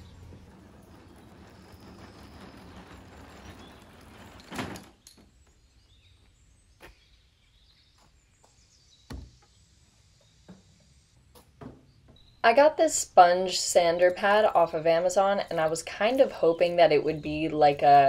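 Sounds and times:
furniture dolly rumbling on concrete: 0.0s - 6.7s, 10.5s - 18.0s
sharp wooden knock: 9.1s - 9.4s.

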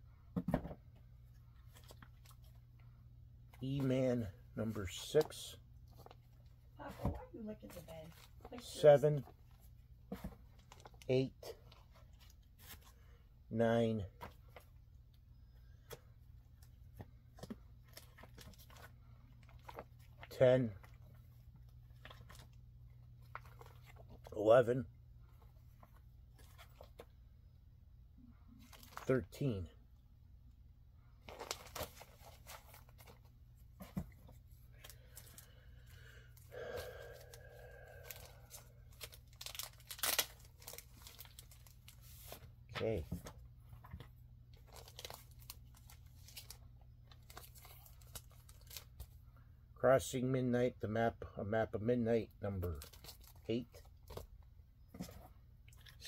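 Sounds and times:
low room hum: 0.0s - 56.0s
comic books rustling and tapping: 5.0s - 13.0s, 14.2s - 14.8s, 15.7s - 24.4s, 25.2s - 27.2s, 31.2s - 35.4s, 38.0s - 49.2s, 52.6s - 56.0s
plastic sleeves crinkling: 16.5s - 24.4s, 31.2s - 35.6s, 37.1s - 42.9s, 43.7s - 49.2s, 52.6s - 56.0s.

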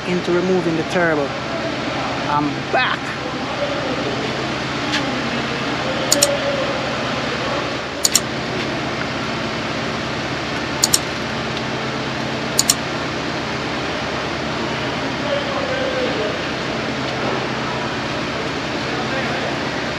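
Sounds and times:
mechanical hum: 0.0s - 19.9s
mouse double click: 6.1s - 6.3s, 8.0s - 8.2s, 10.8s - 11.0s, 12.6s - 12.8s.

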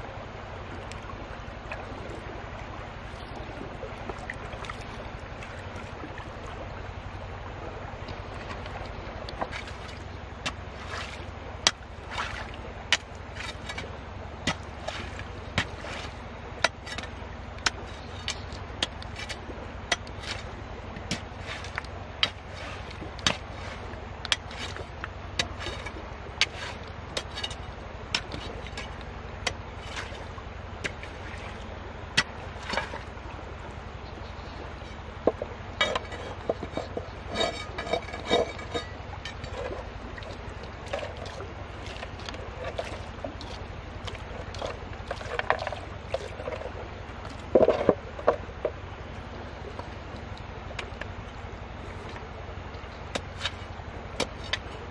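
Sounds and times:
iron bar knocking on rocks: 12.9s - 20.4s, 21.0s - 23.6s, 24.3s - 30.2s, 35.2s - 39.7s, 54.2s - 54.7s
scraping: 12.9s - 31.2s, 34.4s - 48.4s, 53.1s - 54.8s.

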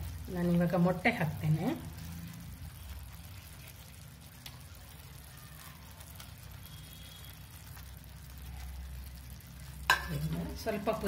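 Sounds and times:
gravy simmering with bubbling pops: 0.0s - 11.0s.

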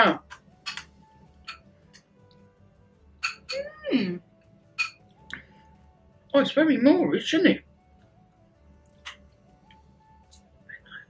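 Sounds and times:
faint background music: 0.0s - 11.0s
spoons clicking on glasses: 0.7s - 0.9s, 3.2s - 3.6s, 4.8s - 5.0s.

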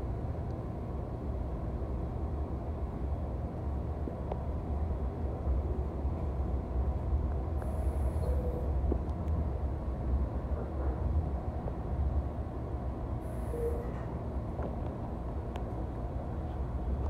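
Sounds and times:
train wheels rumbling on rails: 5.8s - 12.2s.

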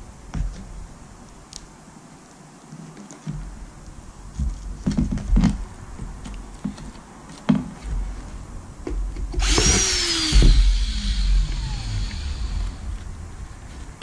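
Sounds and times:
cordless drill whining: 9.4s - 13.0s.

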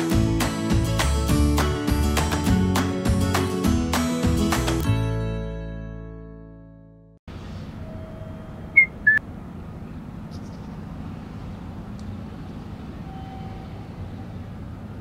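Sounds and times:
short high chirps: 7.8s - 9.2s.

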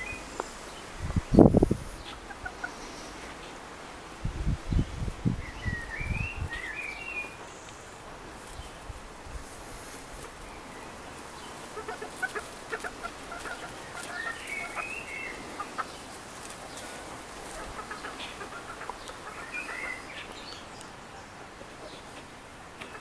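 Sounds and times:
hen clucking: 1.4s - 3.6s, 11.1s - 20.6s, 21.4s - 23.0s.

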